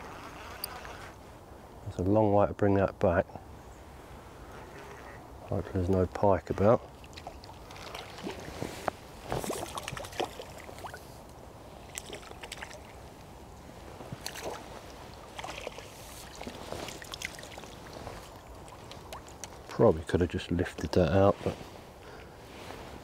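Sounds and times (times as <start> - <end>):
water splashing and sloshing: 6.4 - 19.8.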